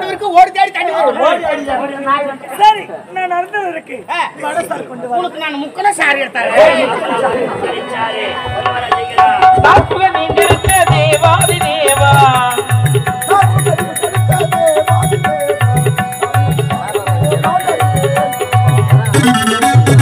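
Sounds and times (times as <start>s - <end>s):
wavering melody line: 7.8s - 20.0s
drum beat: 8.5s - 20.0s.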